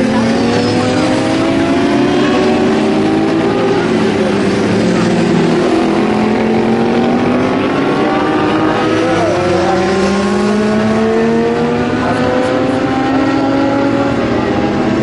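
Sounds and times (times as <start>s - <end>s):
motorcycle passing close: 0.0s - 15.0s
racing motorcycle engines revving: 0.0s - 15.0s.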